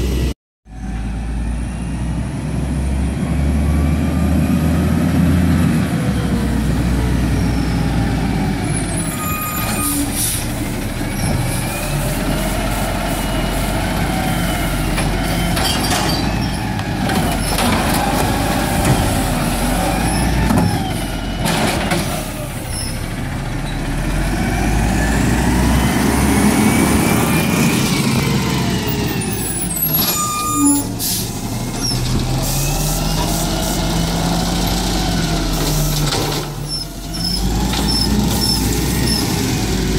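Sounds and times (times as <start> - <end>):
diesel truck engine: 0.0 - 39.9
air brakes hissing: 9.5 - 10.8, 30.4 - 31.5.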